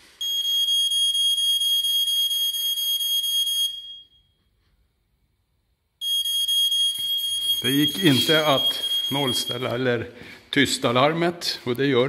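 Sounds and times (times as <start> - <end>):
alarm high-pitched tone: 6.0 - 9.9.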